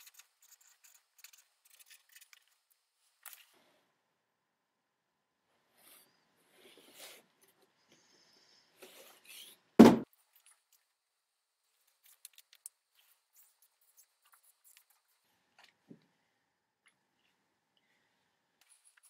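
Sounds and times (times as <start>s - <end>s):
loud thump: 9.8s - 10.1s.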